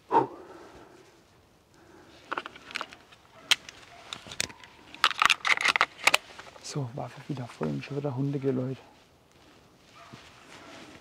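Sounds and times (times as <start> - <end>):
rifle reloading clicks and rattles: 2.3 - 6.6.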